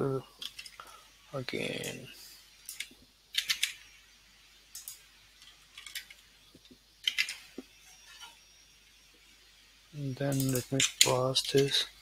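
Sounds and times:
low room hush: 0.0s - 12.0s
keyboard and mouse clicks: 2.7s - 3.8s, 7.0s - 7.4s.

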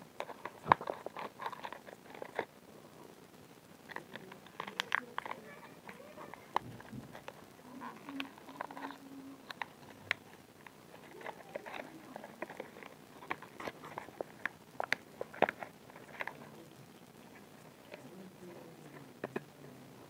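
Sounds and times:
plastic packaging crinkling: 0.2s - 2.5s, 3.8s - 16.6s.

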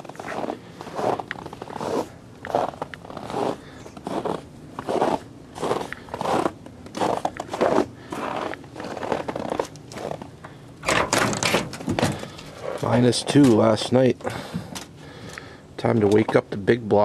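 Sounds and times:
footsteps crunching through snow: 0.0s - 10.3s.

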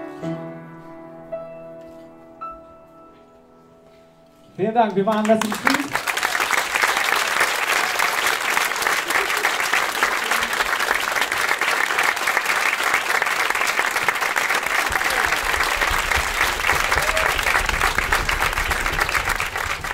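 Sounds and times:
audience applauding: 4.9s - 19.9s.

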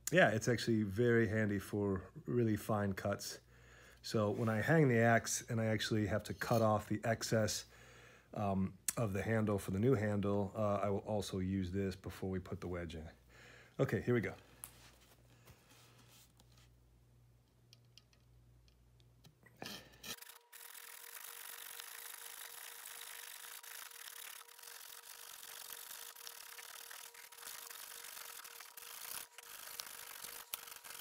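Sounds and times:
steady hum: 19.6s - 31.0s
saw cutting wood: 20.0s - 31.0s.

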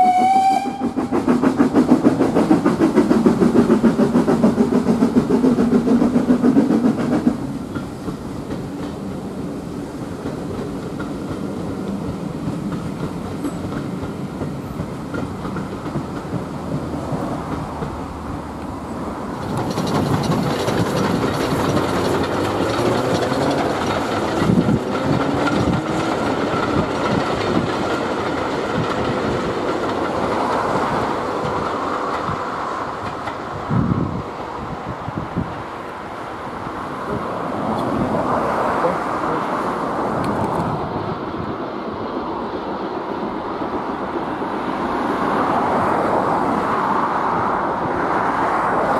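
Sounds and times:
train wheels clattering over rail joints: 0.2s - 35.7s.

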